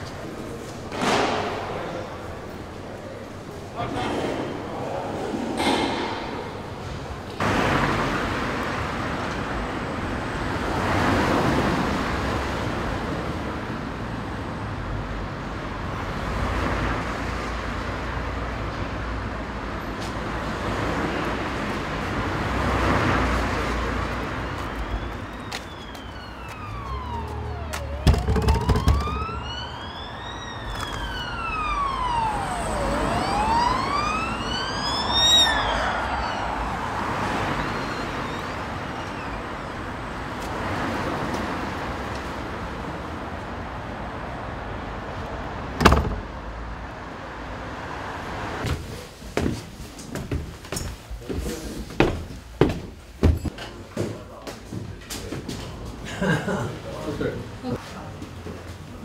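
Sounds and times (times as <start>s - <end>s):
street traffic noise: 0.0s - 59.0s
emergency siren wailing: 23.6s - 40.1s.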